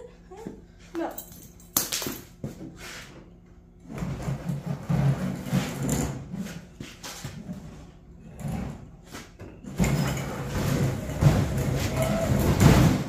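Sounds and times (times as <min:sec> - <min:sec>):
tool box rolling on concrete: 0:03.9 - 0:13.0.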